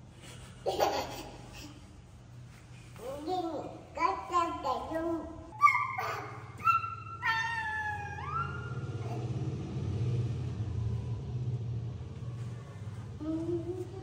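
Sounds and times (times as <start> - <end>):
steady low rumble: 7.6 - 14.0.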